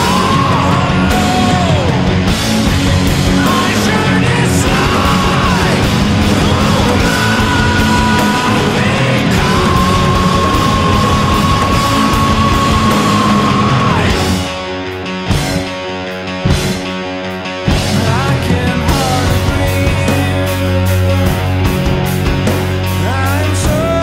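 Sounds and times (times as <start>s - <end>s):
shouted vocals: 0.0s - 2.2s, 3.3s - 14.4s
heavy rock music: 0.0s - 24.0s.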